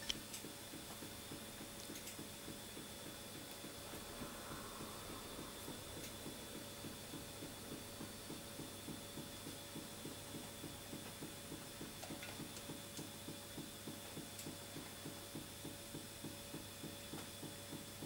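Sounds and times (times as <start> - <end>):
stirling engine soft beat: 2.4 - 16.7.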